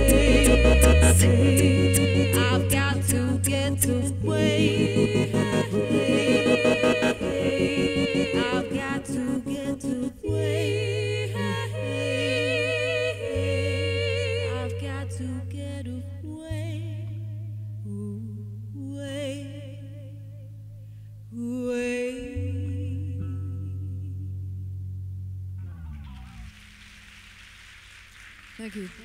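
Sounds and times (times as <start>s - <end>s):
looped voices: 0.0s - 14.8s
woman singing with vibrato: 0.0s - 17.2s, 17.8s - 20.2s, 21.3s - 24.3s
choppy rhythmic vocal pattern: 0.0s - 20.5s, 21.3s - 24.4s
electric bass held notes: 0.0s - 27.1s.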